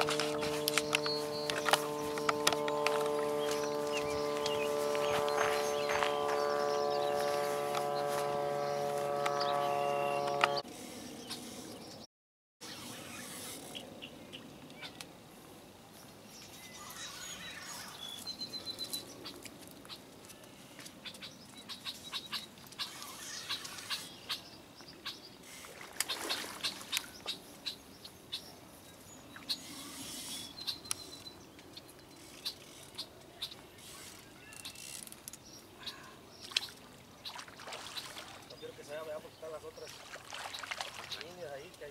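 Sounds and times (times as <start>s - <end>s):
birds chirping: 0.0s - 15.1s, 16.3s - 41.9s
fish splashing at water surface: 36.5s - 38.5s, 39.9s - 41.2s.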